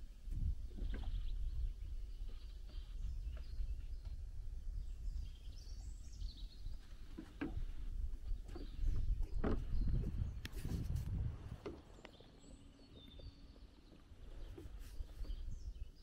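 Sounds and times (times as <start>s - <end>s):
songbirds singing: 0.0s - 16.0s
footsteps on wooden boards: 6.7s - 12.0s
steady low rumble: 7.9s - 11.6s.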